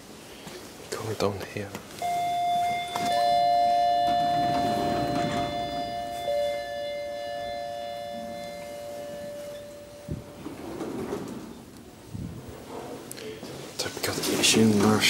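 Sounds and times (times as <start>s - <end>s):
lift arrival chime: 2.0s - 12.2s.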